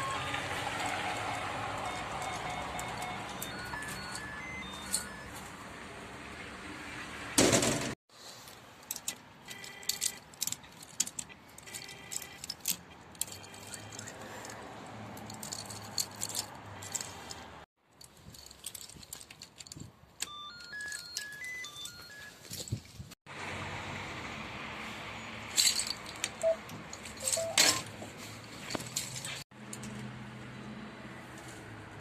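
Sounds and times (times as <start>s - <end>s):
beeps of changing pitch: 1.3s - 5.4s, 26.4s - 26.6s, 27.2s - 27.8s
intercom keypad beeps: 1.8s - 5.4s, 20.2s - 22.4s, 26.4s - 26.6s, 27.2s - 27.9s
keys jangling: 9.8s - 17.4s, 18.0s - 23.0s, 25.5s - 27.9s, 28.6s - 30.0s.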